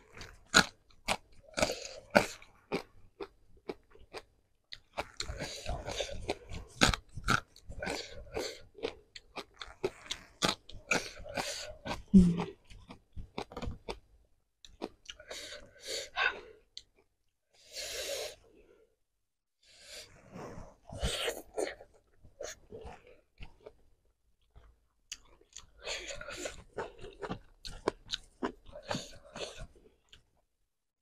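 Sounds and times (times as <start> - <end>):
crunchy bites and wet chewing: 0.0 - 15.4, 24.4 - 30.3.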